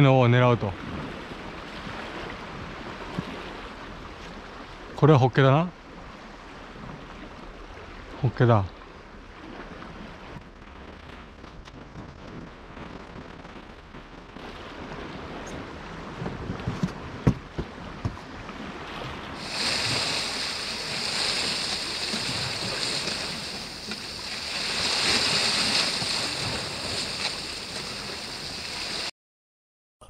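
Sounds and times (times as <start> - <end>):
wind on microphone: 0.7 - 5.0, 5.9 - 29.1
waves washing against rocky shore: 12.7 - 29.1.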